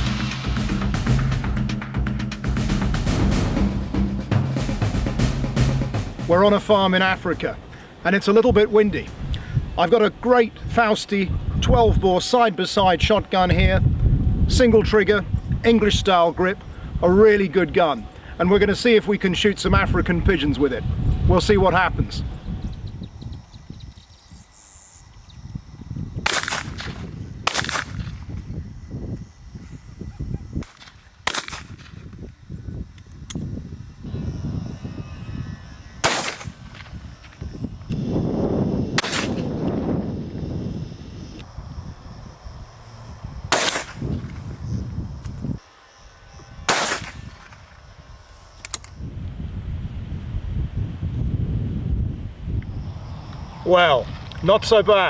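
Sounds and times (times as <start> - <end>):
wind buffeting microphone: 6.3 - 45.6, 46.2 - 55.0
shotgun shots: 26.2 - 28.2, 30.6 - 32.0, 36.0 - 36.9, 39.0 - 39.5, 43.5 - 44.2, 46.7 - 47.6.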